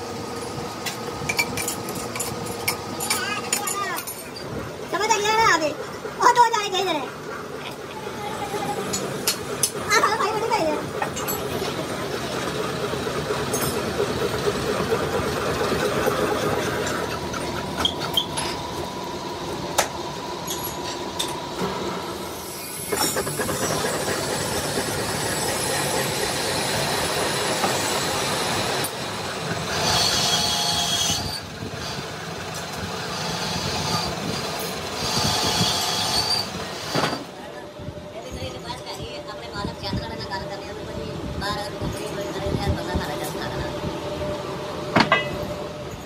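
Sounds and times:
metal machining noise: 0.0s - 6.4s, 7.2s - 37.4s.

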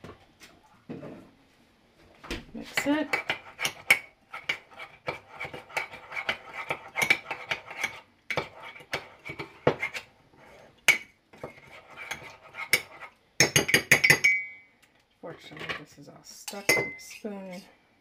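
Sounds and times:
metal spoon clinking in mug: 13.4s - 14.7s, 16.5s - 17.2s.

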